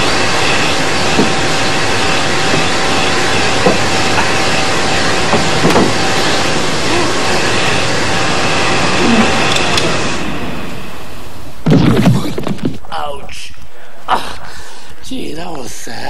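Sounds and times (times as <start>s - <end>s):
hand dryer blowing air: 0.0s - 10.8s
hand dryer motor whine: 0.0s - 11.3s
short bumps: 11.6s - 13.0s.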